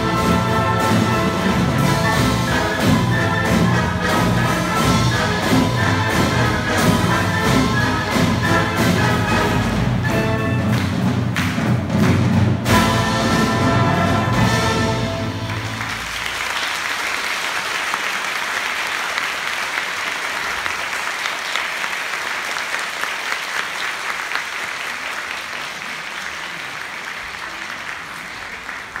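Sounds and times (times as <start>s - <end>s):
audience applauding: 10.6s - 13.0s, 14.4s - 29.0s.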